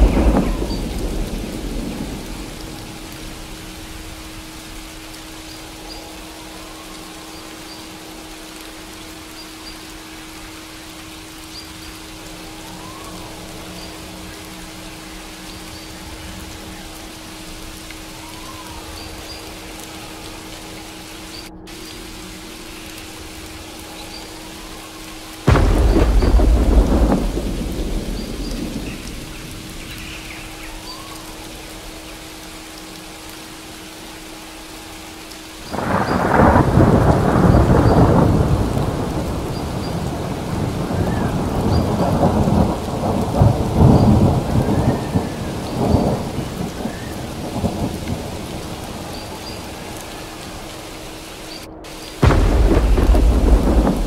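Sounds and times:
thunderclap rumbling: 0:00.0 - 0:04.6, 0:25.4 - 0:31.5, 0:35.7 - 0:54.0
steady rain: 0:00.0 - 0:54.0.

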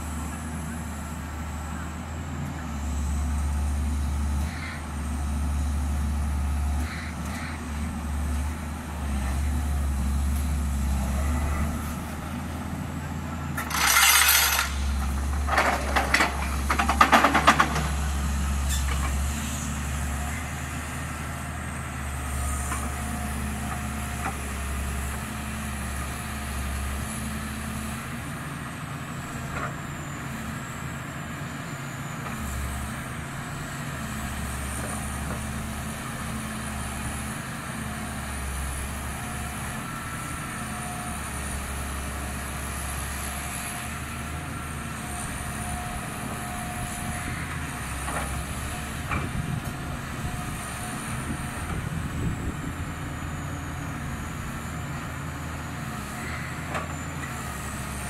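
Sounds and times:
pile hammer and diesel engine drone: 0:00.0 - 0:58.0
metallic clanks rattling: 0:13.6 - 0:14.9.

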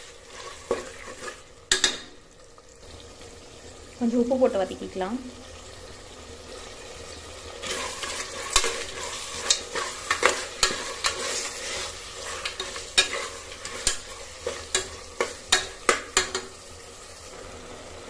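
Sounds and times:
meat sizzling in oil: 0:00.0 - 0:18.0
metal spoon scraping pot: 0:07.6 - 0:16.4.

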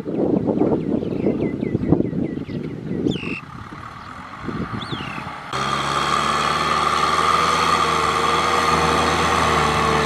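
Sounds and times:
wind buffeting microphone: 0:00.0 - 0:05.6
tractor diesel engine running: 0:03.1 - 0:10.0.

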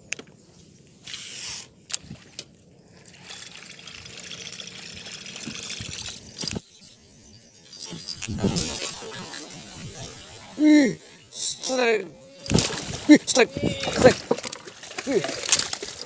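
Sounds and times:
fishing reel clicks: 0:03.1 - 0:12.7
lure splashing across water: 0:07.7 - 0:16.0.

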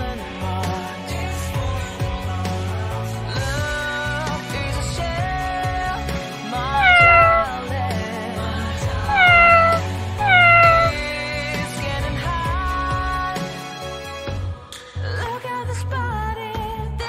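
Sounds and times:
background music: 0:00.0 - 0:17.0
cat meowing: 0:06.7 - 0:07.6, 0:09.1 - 0:11.0.

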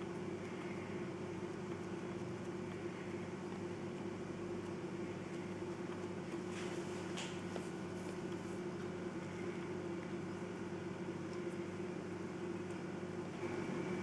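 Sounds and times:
low machine hum: 0:00.0 - 0:14.0
faint handling noises: 0:05.4 - 0:10.6.

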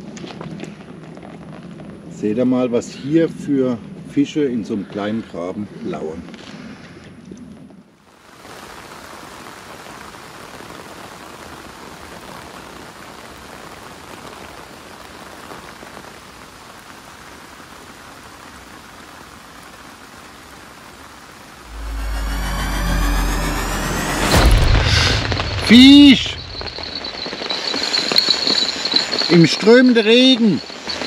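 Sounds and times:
heavy rain falling: 0:08.1 - 0:31.0
loud low rumble: 0:21.6 - 0:27.8.

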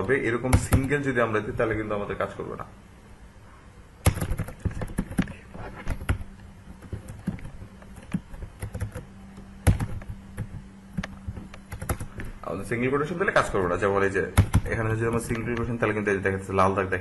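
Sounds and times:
computer keyboard typing: 0:00.5 - 0:01.0, 0:04.0 - 0:12.3, 0:14.3 - 0:15.8.

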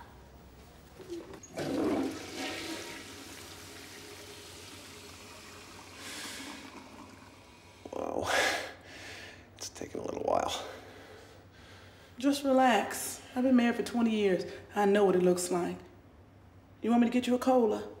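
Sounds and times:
toilet flushing: 0:01.1 - 0:07.9.

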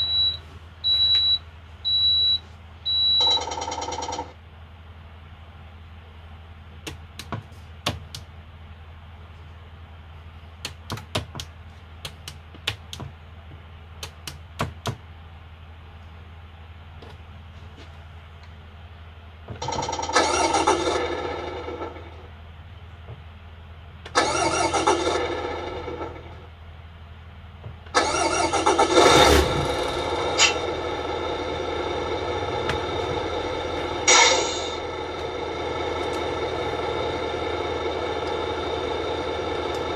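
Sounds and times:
steady low hum: 0:00.0 - 0:39.9
truck engine revving and idling: 0:19.6 - 0:39.9.

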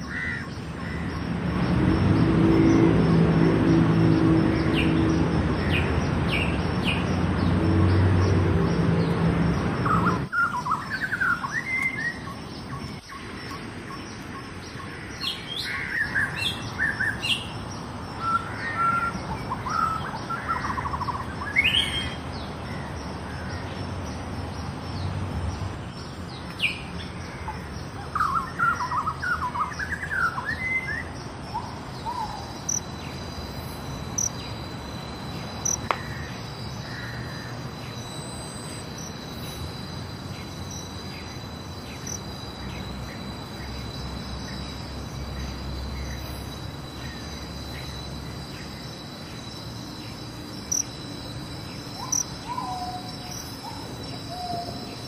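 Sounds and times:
birds chirping and trilling: 0:00.0 - 0:55.0
low steady drone: 0:31.6 - 0:55.0.

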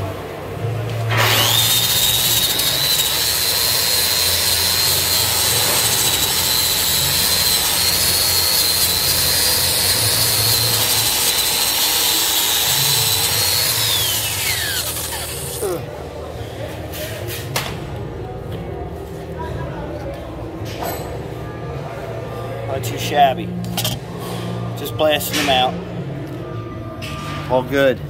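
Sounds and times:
angle grinder grinding steel: 0:01.1 - 0:15.8.

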